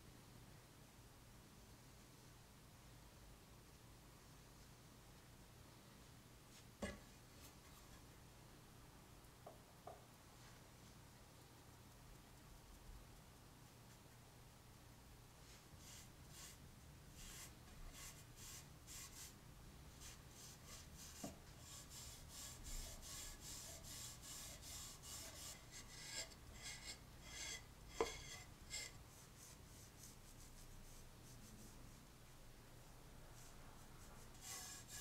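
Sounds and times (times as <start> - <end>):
rag rubbing wooden handle: 20.0 - 29.0, 34.4 - 35.0.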